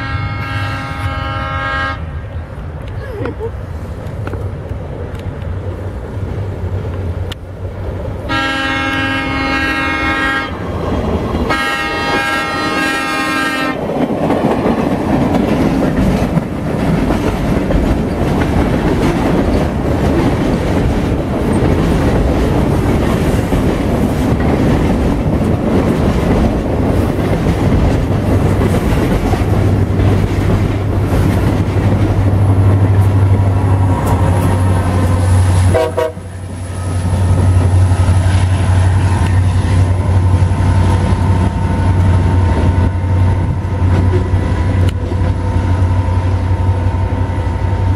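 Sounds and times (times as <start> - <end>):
train horn blasts: 0.0 - 2.4, 8.3 - 10.6, 11.5 - 13.8, 35.6 - 36.4
diesel locomotive engine drone: 0.0 - 47.9
wheels on rails: 13.8 - 47.9.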